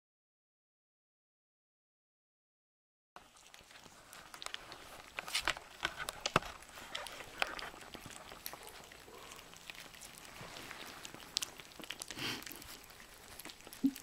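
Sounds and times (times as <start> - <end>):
puppies lapping food: 3.2 - 14.0.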